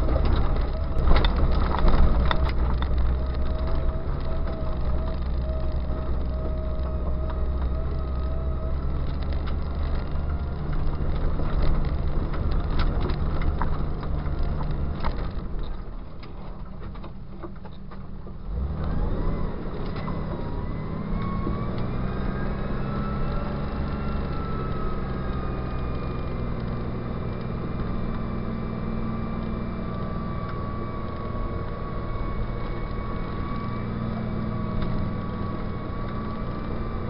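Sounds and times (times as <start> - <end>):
car engine running: 0.0 - 37.0
rising whine: 18.5 - 37.0.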